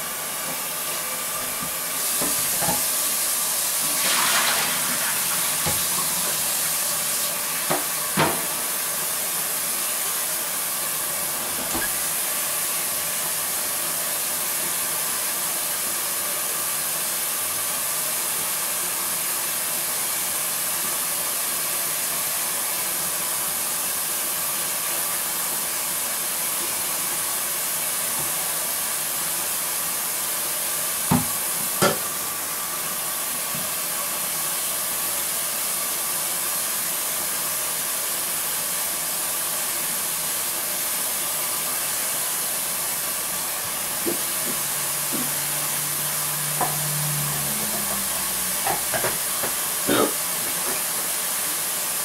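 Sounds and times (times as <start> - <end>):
tap running into metal sink: 5.4 - 6.0, 31.1 - 32.1, 48.6 - 49.6.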